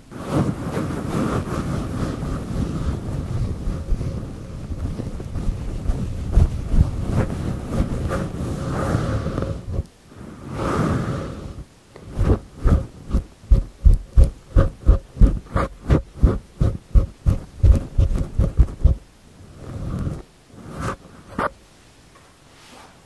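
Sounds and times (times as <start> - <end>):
hands rubbing microphone windscreen: 0.1 - 9.9, 12.0 - 21.6.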